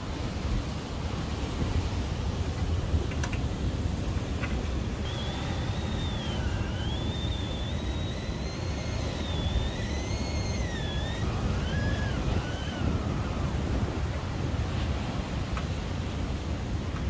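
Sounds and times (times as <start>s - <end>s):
wind noise: 0.0s - 17.0s
kettle whistling: 5.0s - 13.7s.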